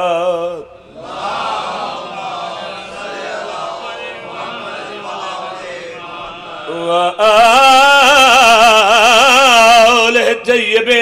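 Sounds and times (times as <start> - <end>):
men chanting together: 0.9 - 8.8
man melodic recitation: 6.7 - 11.0.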